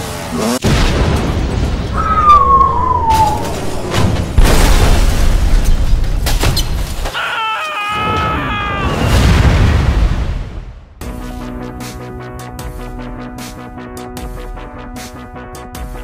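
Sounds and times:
booming explosion rumble: 0.6s - 6.2s, 9.1s - 10.8s
wavering pitched wail: 2.0s - 4.0s.

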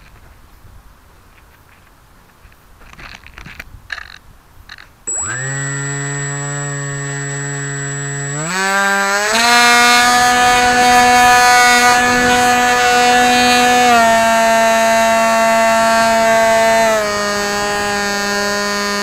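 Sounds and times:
electric motor whine: 5.1s - 19.0s.

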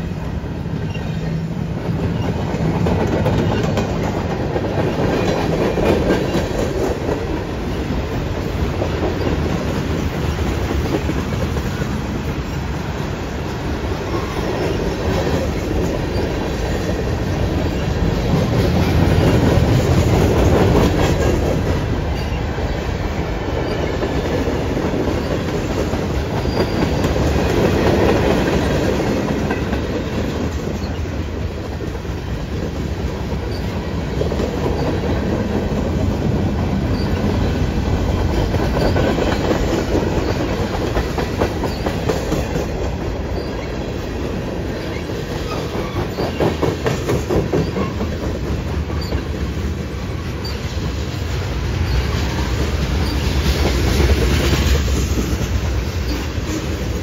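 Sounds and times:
train wheels rumbling and clacking: 0.0s - 57.0s.

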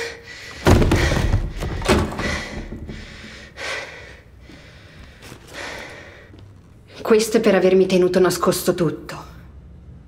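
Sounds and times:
heavy impacts and slams: 0.5s - 3.3s.

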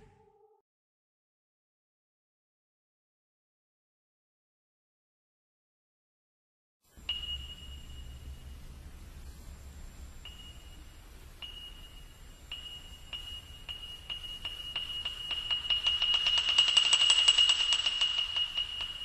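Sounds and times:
high ringing ping: 7.1s - 8.6s, 10.2s - 19.0s.

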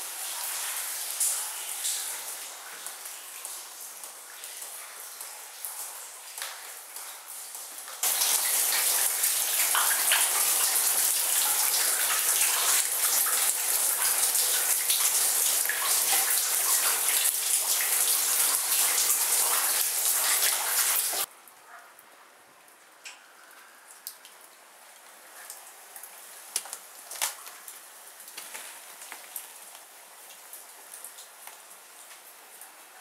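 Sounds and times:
rushing splashing water: 8.0s - 21.3s.

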